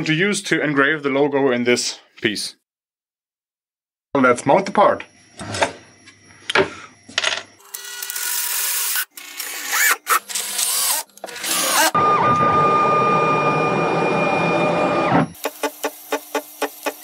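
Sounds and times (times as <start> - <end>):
mill machine high whine: 4.2 - 17.0
cordless drill driving screws: 7.6 - 12.0.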